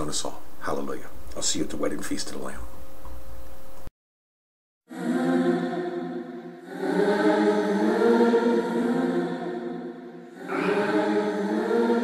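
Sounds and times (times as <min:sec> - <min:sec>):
choir singing held chords: 0:04.9 - 0:12.0.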